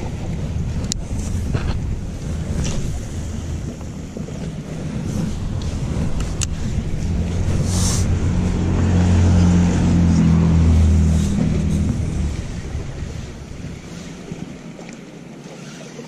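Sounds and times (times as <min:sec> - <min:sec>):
engine passing by: 0:03.7 - 0:14.9.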